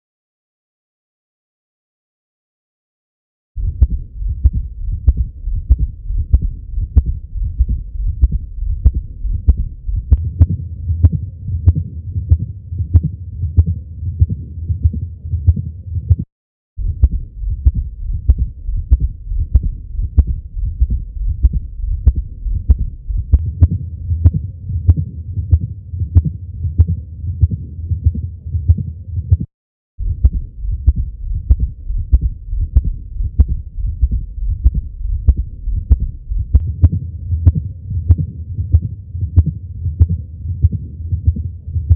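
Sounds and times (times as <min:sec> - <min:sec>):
low continuous rumble: 0:03.6 - 0:16.2, 0:16.8 - 0:41.9
heartbeat through stethoscope: 0:03.6 - 0:41.9.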